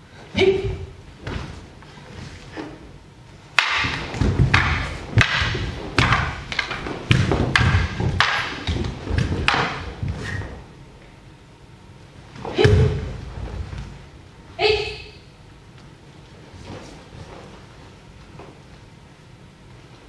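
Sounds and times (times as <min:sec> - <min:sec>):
wooden swords clacking: 0:03.5 - 0:10.7
bare feet stamping on wooden floor: 0:03.8 - 0:10.2.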